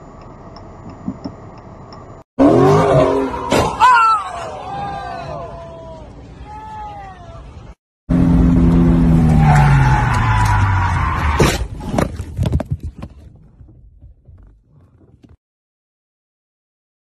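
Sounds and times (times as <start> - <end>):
vehicle engine noise: 8.1 - 11.2.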